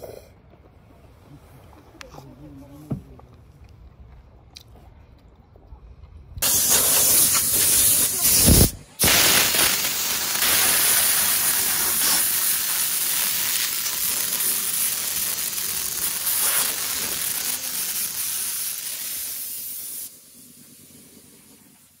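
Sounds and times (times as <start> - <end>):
compressed-air blow gun hissing: 6.4 - 22.0.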